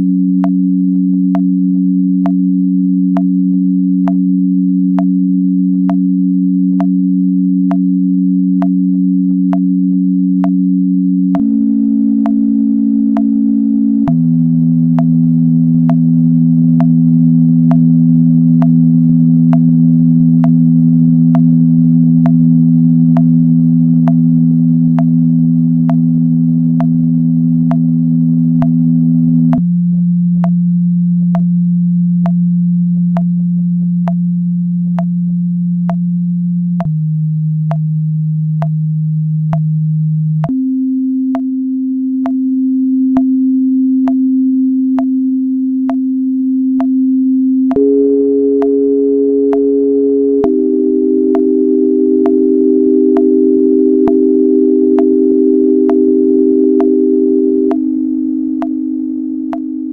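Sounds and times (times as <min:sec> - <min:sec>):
electronic drone tones: 0:00.0 - 0:37.0, 0:40.4 - 0:59.9
metronome click: 0:00.4 - 0:01.5, 0:02.2 - 0:02.4, 0:03.1 - 0:04.3, 0:05.0 - 0:06.1, 0:06.7 - 0:07.0, 0:07.7 - 0:07.9, 0:08.6 - 0:10.6, 0:12.2 - 0:12.5, 0:13.1 - 0:13.4, 0:14.0 - 0:15.2, 0:15.8 - 0:16.1, 0:16.8 - 0:17.0, 0:17.7 - 0:17.9, 0:18.6 - 0:18.8, 0:19.5 - 0:19.7, 0:20.4 - 0:20.6, 0:21.3 - 0:21.6, 0:22.2 - 0:22.4, 0:23.2 - 0:23.4, 0:24.0 - 0:24.2, 0:25.0 - 0:25.2, 0:25.9 - 0:26.1, 0:27.7 - 0:27.9, 0:28.6 - 0:28.8, 0:33.1 - 0:33.4, 0:37.7 - 0:37.9, 0:39.5 - 0:39.7, 0:40.4 - 0:40.6, 0:41.3 - 0:41.5, 0:42.2 - 0:42.4, 0:43.2 - 0:43.4, 0:44.0 - 0:44.2, 0:45.0 - 0:45.2, 0:46.8 - 0:47.0, 0:47.7 - 0:48.0, 0:48.6 - 0:48.9, 0:49.5 - 0:58.8, 0:59.5 - 0:59.9.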